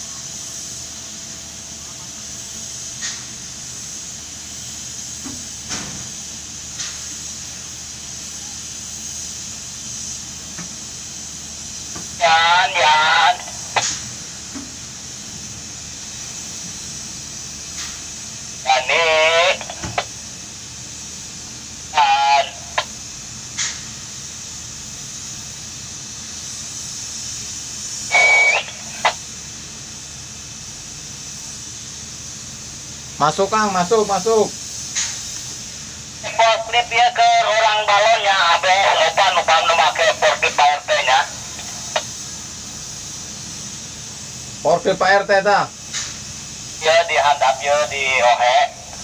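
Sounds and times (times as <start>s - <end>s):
crane machinery hum with hiss: 0.0s - 49.0s
two-way radio squawks: 12.2s - 13.8s, 18.6s - 20.1s, 21.9s - 22.9s, 28.1s - 29.2s, 36.2s - 42.1s, 46.8s - 49.0s
radio click: 19.6s - 20.1s
beep-like radio tone: 28.1s - 29.0s.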